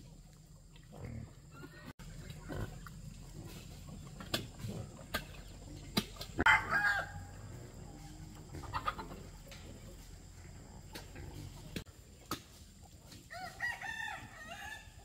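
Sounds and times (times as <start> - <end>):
chickens clucking: 1.2 - 13.3
loud chicken call: 6.4 - 7.3.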